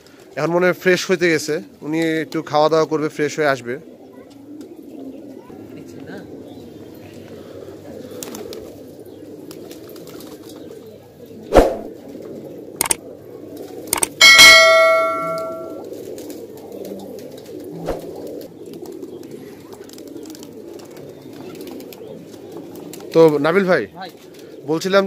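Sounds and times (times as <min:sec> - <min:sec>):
pigeons cooing: 0:00.0 - 0:25.0
sharp thump: 0:11.5 - 0:11.9
loud metallic clang: 0:14.0 - 0:15.8.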